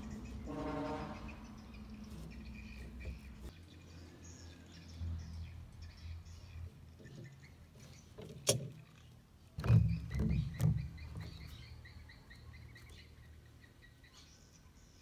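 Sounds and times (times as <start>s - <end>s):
knocks and rustles: 9.6s - 11.5s.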